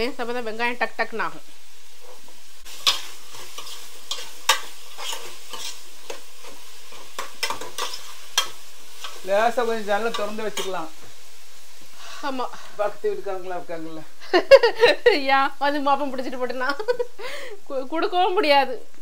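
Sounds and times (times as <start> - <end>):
onions sizzling in oil: 0.0 - 19.0
spoon scraping a pot: 2.0 - 9.2.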